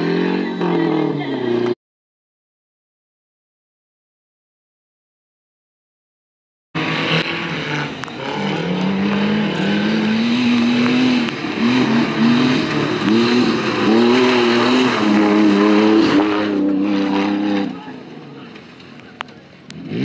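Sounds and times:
off-road vehicle engine revving: 0:00.0 - 0:01.8, 0:06.8 - 0:20.0.

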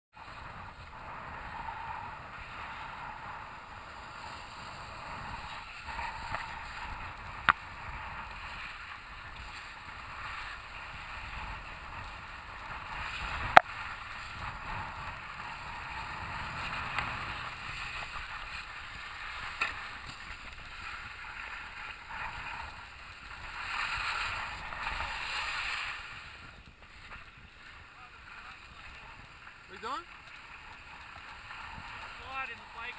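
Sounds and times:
snowboards scraping over snow: 0:00.2 - 0:32.9.

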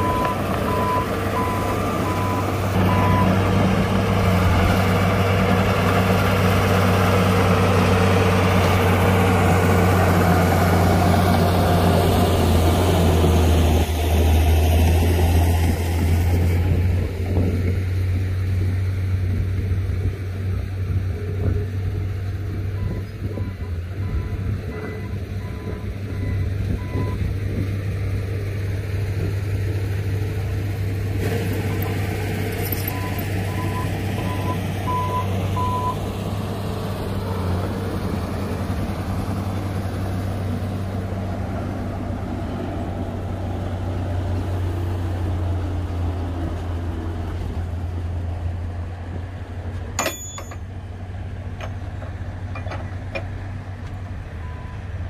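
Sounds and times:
reversing alarm beeping: 0:00.0 - 0:03.3
bulldozer diesel engine: 0:00.0 - 0:55.0
sharp metallic clank: 0:50.0 - 0:50.7.

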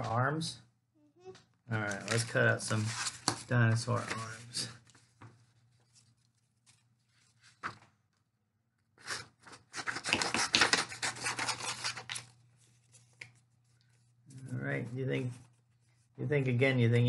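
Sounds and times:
paper handling: 0:01.8 - 0:08.0, 0:09.0 - 0:16.1
scissors cutting paper: 0:09.0 - 0:12.3.

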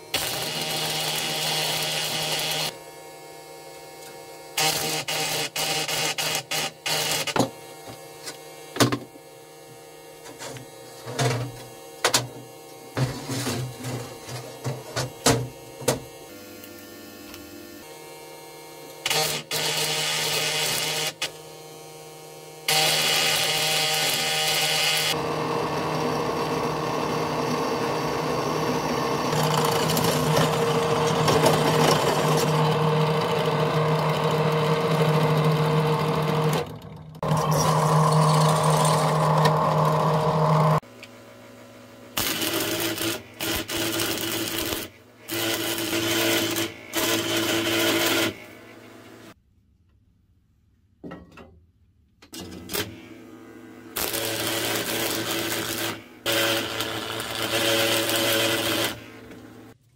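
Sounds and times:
arc welding crackle: 0:00.0 - 0:02.8, 0:04.0 - 0:08.4, 0:18.9 - 0:21.4, 0:22.7 - 0:25.2, 0:42.2 - 0:48.5, 0:52.7 - 0:53.0, 0:53.9 - 0:59.8
drill press motor hum: 0:00.0 - 0:49.4, 0:52.4 - 0:59.8.

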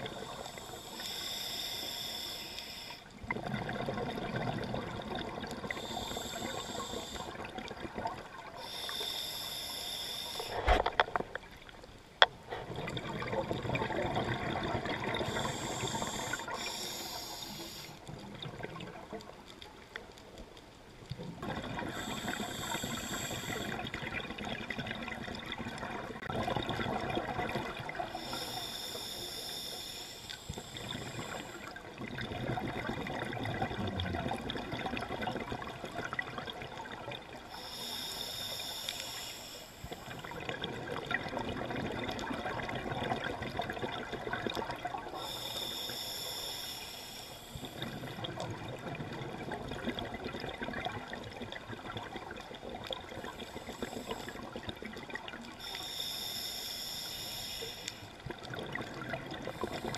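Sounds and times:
regulator hissing inhalations: 0:00.0 - 0:03.1, 0:05.6 - 0:07.4, 0:08.6 - 0:10.6, 0:15.2 - 0:18.1, 0:21.9 - 0:23.8, 0:28.1 - 0:31.6, 0:37.5 - 0:40.3, 0:45.1 - 0:48.1, 0:53.3 - 0:54.5, 0:55.6 - 0:58.1
bubbling exhalations: 0:32.1 - 0:37.0.

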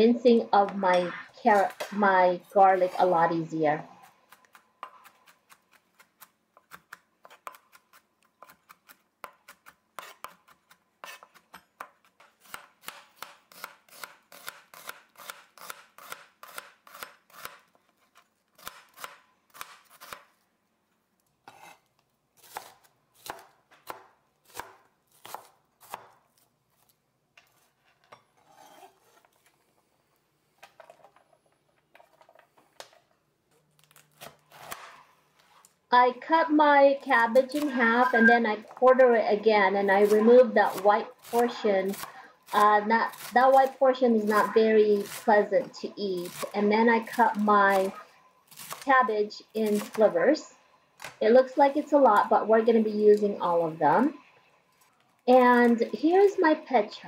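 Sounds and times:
knife chopping on plastic board: 0:04.3 - 0:17.6, 0:22.5 - 0:26.2.

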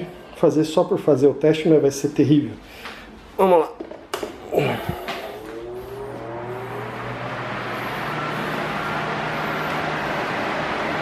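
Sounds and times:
electric fan whine: 0:03.0 - 0:11.0
fan air rush: 0:04.4 - 0:11.0
low motor hum: 0:04.4 - 0:11.0.

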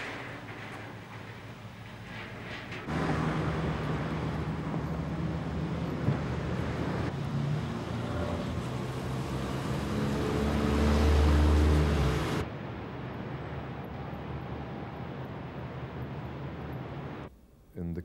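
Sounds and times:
cars on city street: 0:02.6 - 0:17.3
vehicle engine passing: 0:02.9 - 0:17.3.

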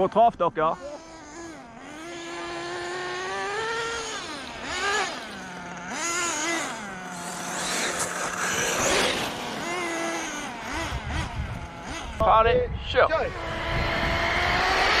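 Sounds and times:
rc car engines revving: 0:00.0 - 0:12.4, 0:13.0 - 0:15.0
rush of noise: 0:07.1 - 0:09.9, 0:12.6 - 0:15.0.

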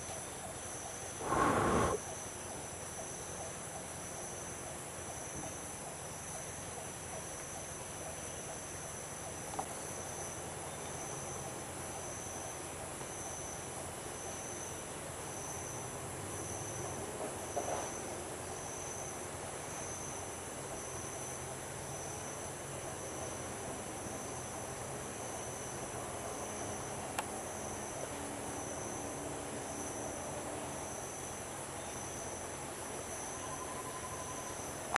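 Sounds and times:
chorus of forest insects: 0:00.0 - 0:35.0.

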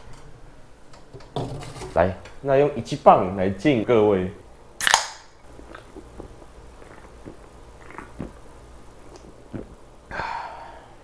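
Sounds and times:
gulps and clicks drinking: 0:05.5 - 0:09.8.

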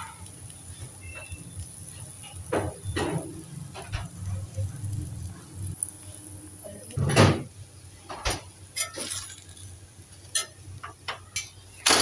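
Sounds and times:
spatula scraping on griddle: 0:00.0 - 0:04.2, 0:08.7 - 0:12.0.

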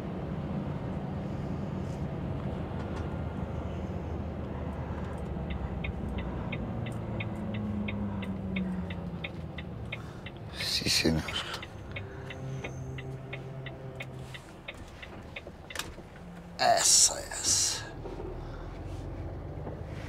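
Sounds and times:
lorry engine running: 0:00.0 - 0:20.0
turn signal clicking: 0:05.0 - 0:16.6.

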